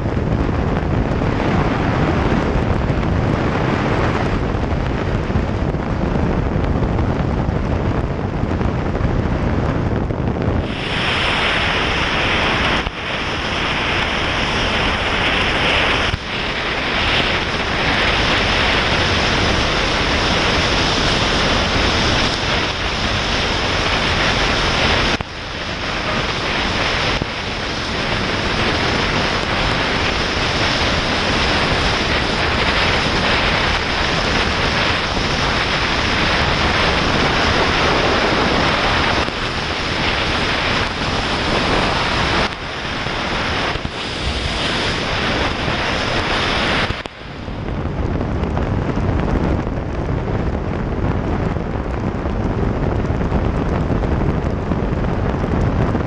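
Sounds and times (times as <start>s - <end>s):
wind rushing over microphone: 0.0s - 56.0s
rain and road spray hiss: 10.5s - 49.2s.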